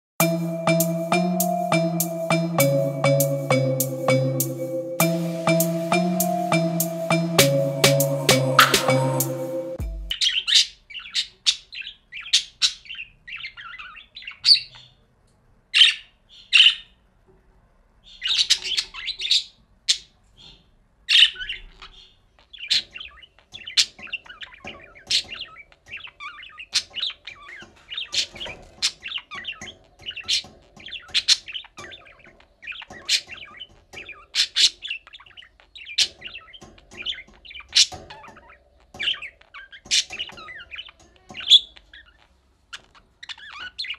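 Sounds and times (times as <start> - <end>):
budgerigars chirping and warbling: 10.1 - 15.0, 18.1 - 43.9.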